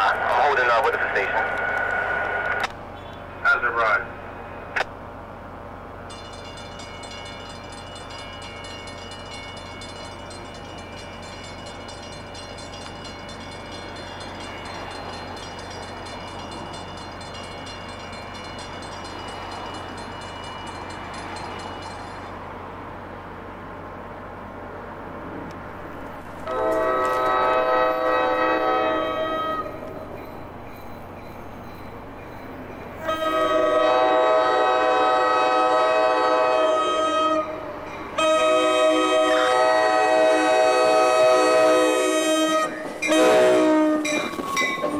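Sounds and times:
train rumbling: 0.0 - 44.9
crossing bell ringing rapidly: 6.1 - 22.5, 28.9 - 33.8, 44.0 - 44.9
train horn blast: 26.4 - 29.8, 33.0 - 37.6, 38.2 - 44.9.

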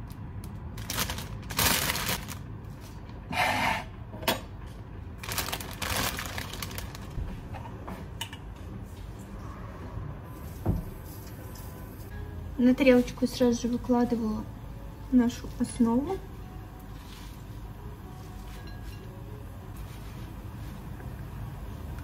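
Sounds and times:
plastic bag crinkling: 0.7 - 2.5, 5.2 - 7.2.

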